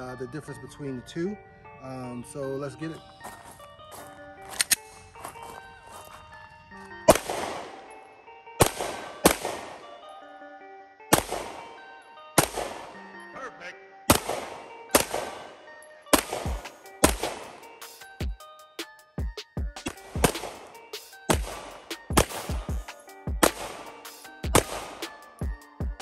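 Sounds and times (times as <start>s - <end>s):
background music: 0.0s - 26.0s
pistol shots: 7.1s - 7.9s, 8.6s - 10.0s, 11.1s - 11.8s, 12.4s - 13.0s, 14.1s - 17.8s, 19.8s - 22.8s, 23.4s - 25.2s.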